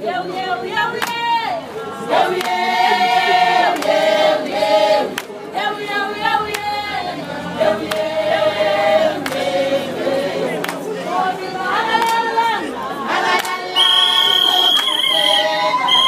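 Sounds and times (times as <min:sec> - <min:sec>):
women singing together: 0:00.0 - 0:16.0.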